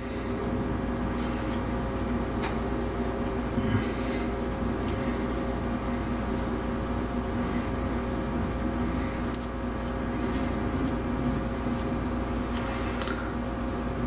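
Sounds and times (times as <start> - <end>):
machine hum: 0.0 - 14.0
comb scraping through hair: 9.3 - 12.6.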